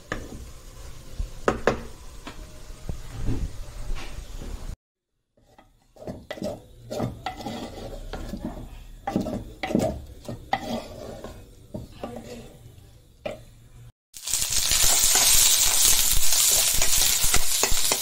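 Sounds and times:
wooden spoon scraping pot: 5.4 - 13.5.

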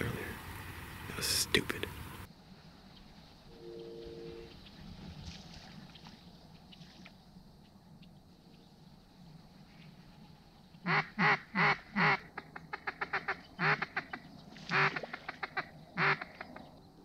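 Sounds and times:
duck call quacks: 10.8 - 16.5.

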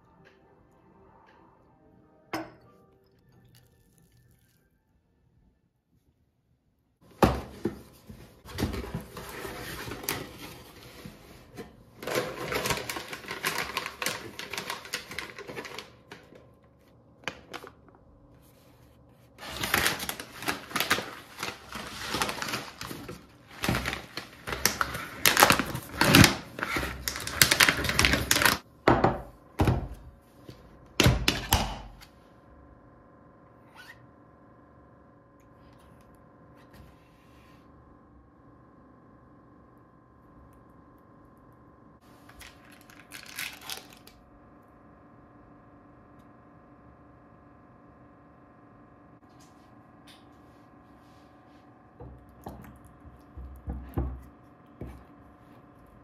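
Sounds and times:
plastic packet crinkling: 12.0 - 16.3, 19.4 - 28.6, 42.2 - 44.2.

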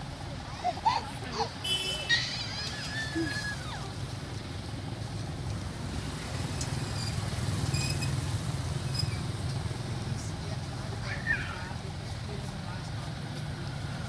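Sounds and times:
low outdoor rumble: 0.0 - 14.0
short high squeak: 6.9 - 8.2, 8.9 - 9.2.

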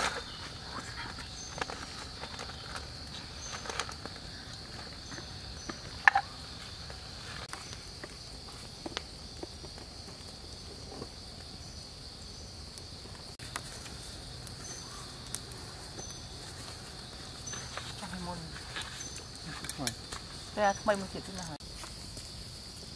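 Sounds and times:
insects droning: 0.0 - 22.9.

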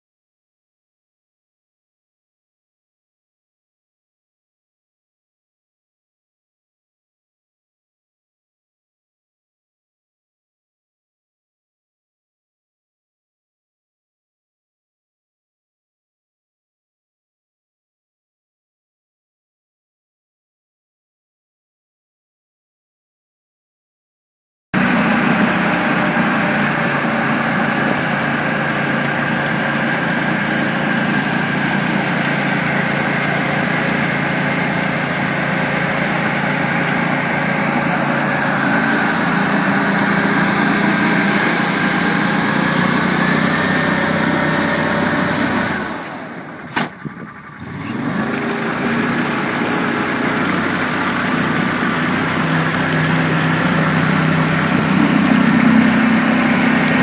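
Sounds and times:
vehicle engine running: 24.8 - 57.0.

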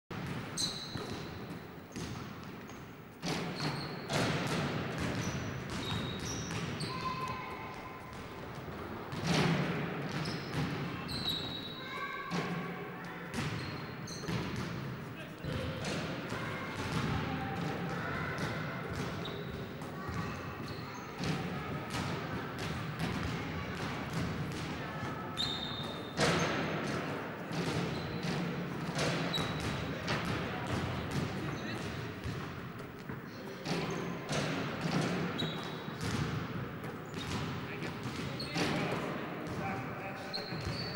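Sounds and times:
basketballs bouncing on wooden floor: 0.2 - 12.6, 13.3 - 39.8
shoe squeaks: 0.5 - 2.1, 3.4 - 4.2, 5.1 - 7.5, 10.1 - 12.2, 13.4 - 14.6, 19.2 - 19.6, 20.6 - 21.2, 25.3 - 26.7, 27.8 - 28.4, 29.1 - 29.8, 33.8 - 34.2, 35.3 - 36.0, 38.3 - 38.9, 40.2 - 40.9
basketball bouncing on wooden floor: 25.8 - 32.6, 33.6 - 36.5, 37.1 - 38.8.

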